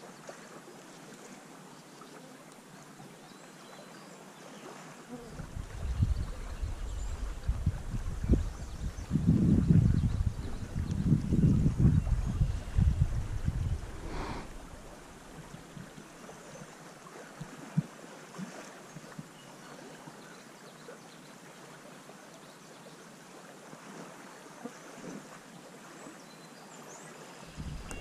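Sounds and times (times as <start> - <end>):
creek water babbling: 0.0 - 28.0.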